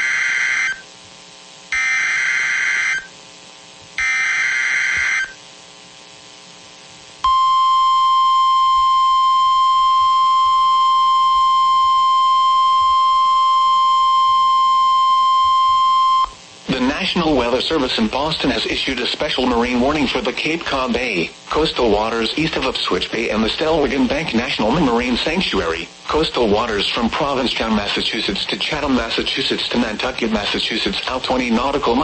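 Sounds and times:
steady warning alarm tone: 0:00.0 - 0:00.9, 0:01.7 - 0:03.1, 0:04.0 - 0:05.4, 0:07.2 - 0:16.4
screeching digital data bursts: 0:01.7 - 0:03.1, 0:04.0 - 0:05.4.

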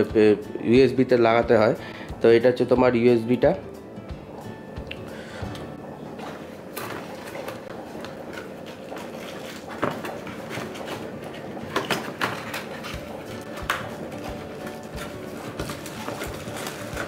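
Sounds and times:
hand rummaging in cardboard box: 0:14.2 - 0:17.0.

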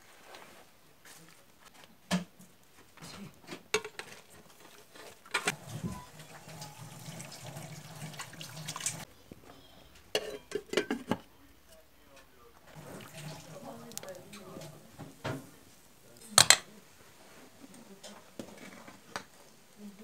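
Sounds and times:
water pouring into pot: 0:05.5 - 0:09.1, 0:12.7 - 0:14.3
steel bowl clanking on pot: 0:10.1 - 0:11.2
metal pot lid clinking: 0:10.2 - 0:11.2.

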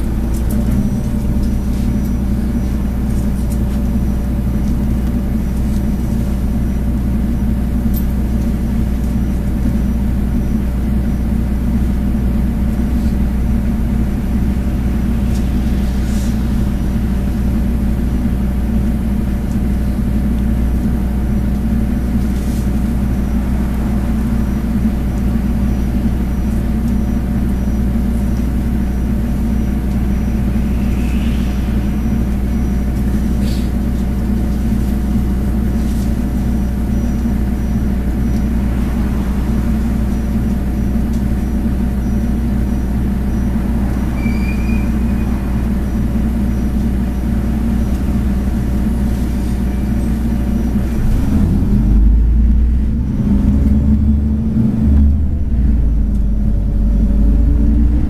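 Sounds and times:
bus engine drone: 0:00.0 - 0:58.0.

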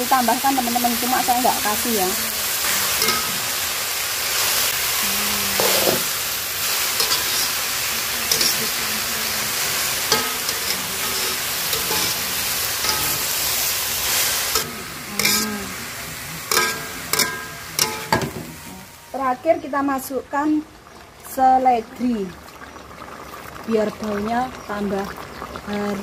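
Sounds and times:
vegetables sizzling in a wok: 0:00.0 - 0:26.0
metal spatula scraping wok: 0:01.7 - 0:04.8, 0:05.6 - 0:08.9, 0:09.5 - 0:15.9, 0:16.5 - 0:19.1.

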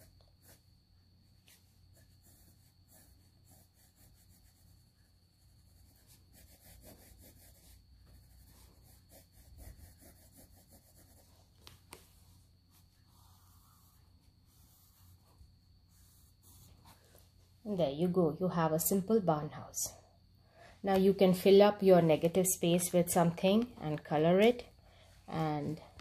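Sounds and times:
pencil scratching on paper: 0:00.0 - 0:00.7, 0:01.5 - 0:17.2.

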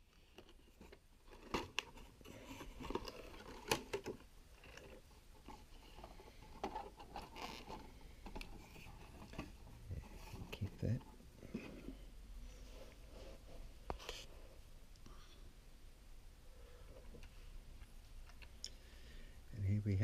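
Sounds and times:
cardboard packaging rustling: 0:00.2 - 0:11.7.

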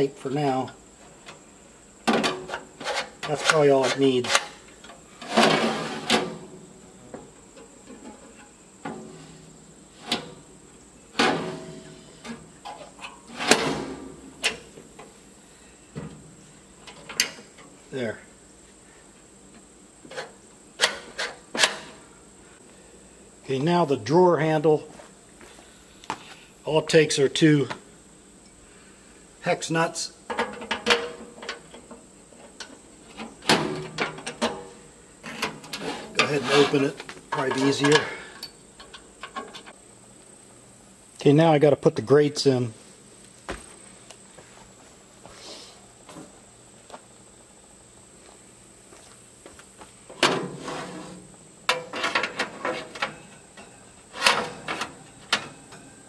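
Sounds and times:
metal door clanking: 0:11.2 - 0:14.7.

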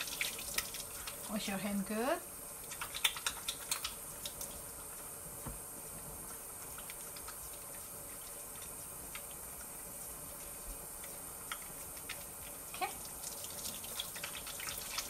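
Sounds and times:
faucet running into sink: 0:00.0 - 0:01.3
water splashes and drips: 0:00.0 - 0:01.5, 0:02.6 - 0:04.7, 0:11.5 - 0:15.0.

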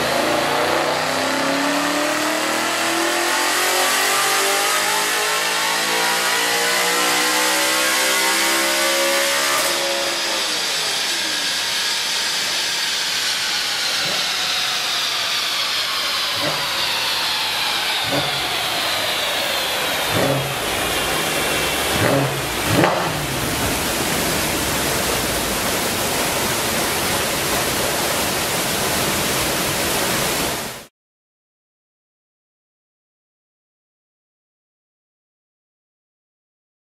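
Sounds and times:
car engine revving down: 0:00.0 - 0:30.6
rollers spinning down whine: 0:00.0 - 0:30.9
steady rushing noise: 0:09.6 - 0:30.9
exhaust pops: 0:20.1 - 0:20.8, 0:21.9 - 0:23.8.

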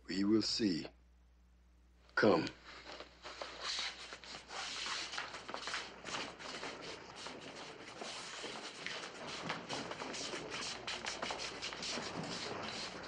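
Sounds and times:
clothing rustle: 0:02.6 - 0:13.0
shuffling footsteps: 0:02.6 - 0:13.0.

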